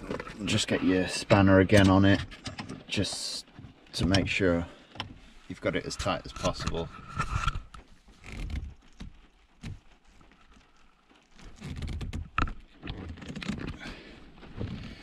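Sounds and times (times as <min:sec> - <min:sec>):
clicks and knocks on gear knob: 0:01.2 - 0:02.8.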